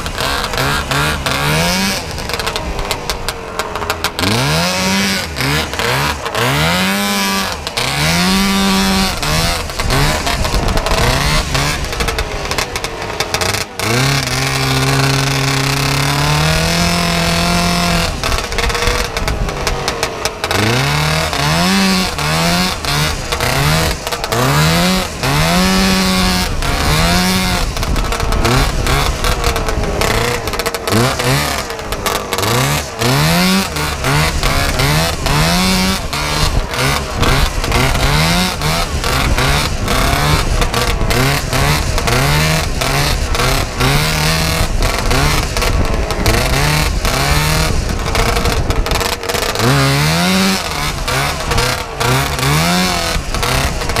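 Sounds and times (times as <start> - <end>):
snowmobile engine revving: 0.0 - 54.0
wind buffeting microphone: 8.1 - 12.6, 33.0 - 51.8.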